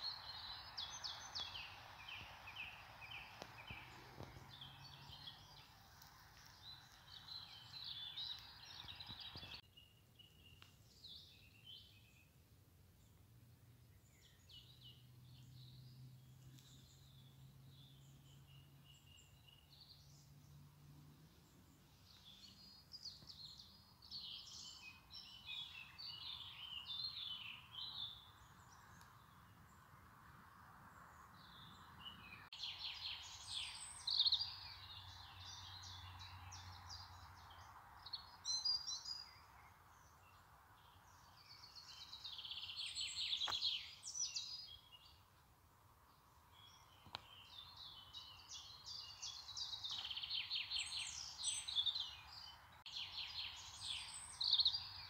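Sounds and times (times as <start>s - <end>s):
faint steady hiss: 0.0s - 14.2s
songbirds chirping and trilling: 0.0s - 55.0s.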